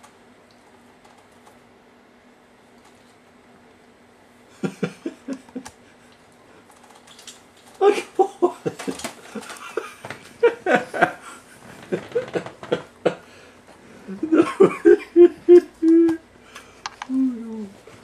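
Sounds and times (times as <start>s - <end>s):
person laughing: 4.5s - 6.0s, 7.8s - 13.3s, 14.0s - 16.2s.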